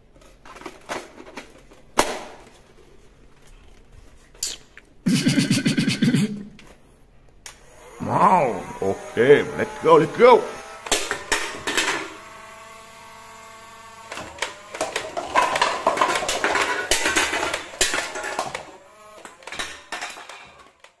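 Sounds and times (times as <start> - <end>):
toy blaster shots: 10.0 - 12.2
cups and cans clattering down: 10.9 - 12.1, 14.2 - 20.8.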